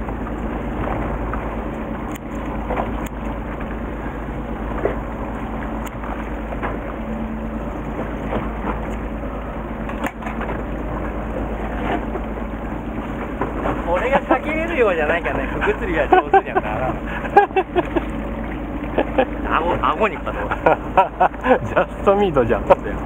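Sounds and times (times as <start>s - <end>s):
boat noise: 0.0s - 23.0s
wind: 0.0s - 23.0s
tackle clicks and crackles: 2.0s - 3.8s.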